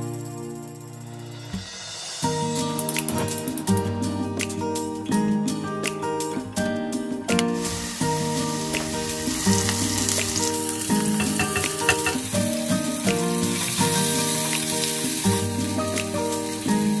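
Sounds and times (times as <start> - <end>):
background music: 0.0 - 17.0
onion sizzling in hot oil: 7.6 - 17.0
wooden spoon stirring: 11.1 - 12.3.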